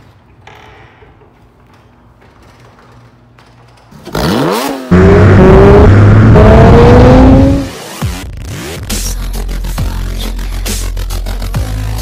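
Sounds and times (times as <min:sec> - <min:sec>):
car engine accelerating hard: 0:04.1 - 0:08.3.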